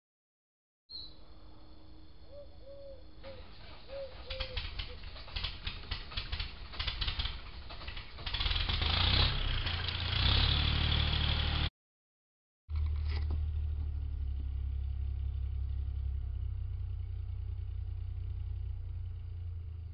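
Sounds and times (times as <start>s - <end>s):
low electrical hum: 0.9s - 6.8s.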